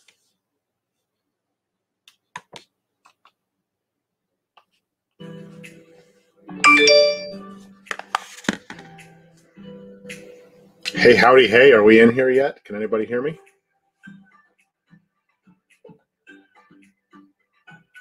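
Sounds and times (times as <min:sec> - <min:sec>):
background music: 0:05.2 - 0:18.0.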